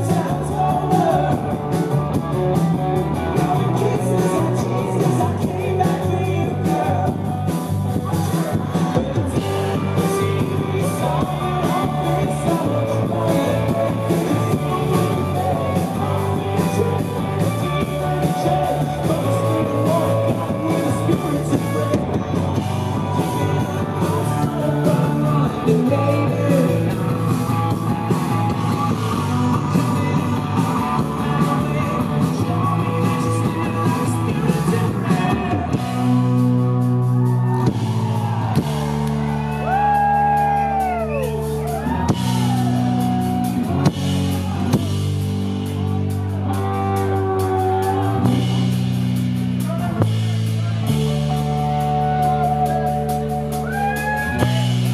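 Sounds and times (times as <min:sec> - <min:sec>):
person singing: 0:00.0 - 0:36.6
drums: 0:00.0 - 0:54.9
electric guitars: 0:00.0 - 0:54.9.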